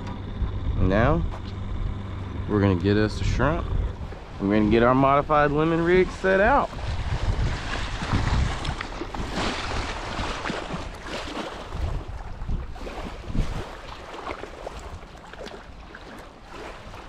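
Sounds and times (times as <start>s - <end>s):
wind gusting on microphone: 0.0s - 14.0s
small waves lapping: 3.8s - 17.0s.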